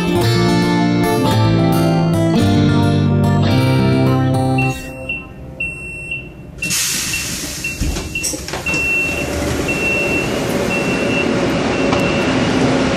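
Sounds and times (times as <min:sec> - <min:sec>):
metro train rushing: 0:09.1 - 0:12.9.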